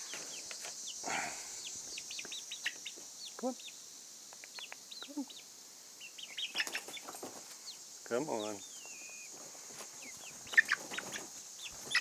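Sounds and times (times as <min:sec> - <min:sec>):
chicks peeping: 0:00.0 - 0:12.0
chicken squawks: 0:06.2 - 0:07.2, 0:10.0 - 0:12.0.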